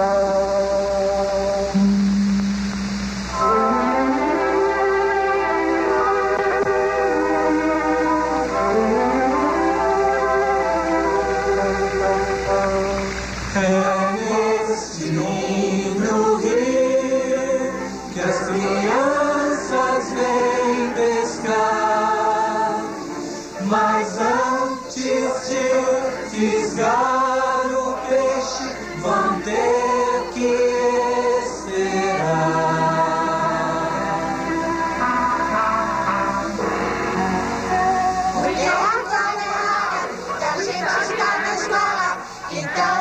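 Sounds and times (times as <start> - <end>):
cartoon soundtrack music: 3.3 - 22.8
choir singing: 3.3 - 43.0.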